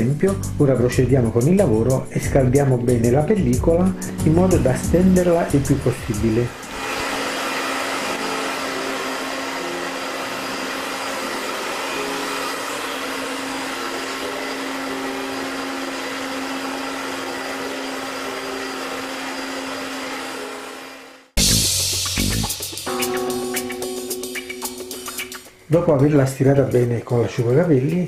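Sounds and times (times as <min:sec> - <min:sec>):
hair dryer running: 0:04.7 - 0:21.4.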